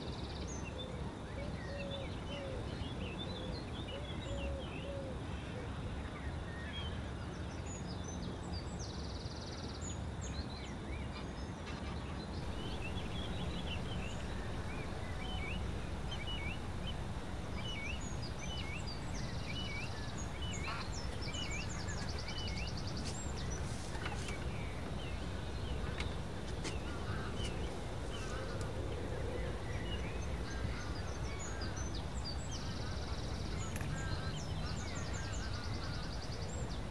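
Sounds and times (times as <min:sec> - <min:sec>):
low background noise: 0:00.0 - 0:36.9
geese and ducks calling: 0:12.4 - 0:36.9
short bird calls: 0:12.4 - 0:36.9.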